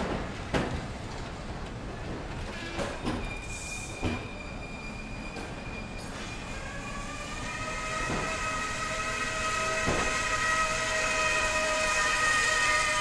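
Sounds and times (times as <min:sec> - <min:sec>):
high brake squeal: 0:02.9 - 0:13.0.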